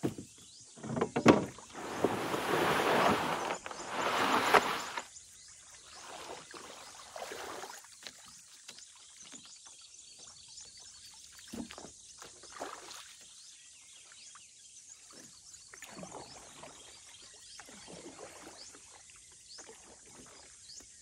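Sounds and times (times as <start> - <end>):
paddle strokes in water: 0.8 - 5.1
water swishing and splashing: 1.4 - 5.2, 5.9 - 8.8.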